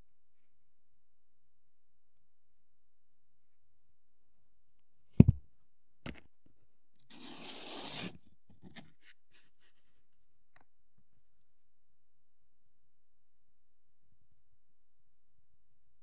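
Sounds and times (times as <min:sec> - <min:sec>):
knocks on work surface: 0:05.2 - 0:05.4.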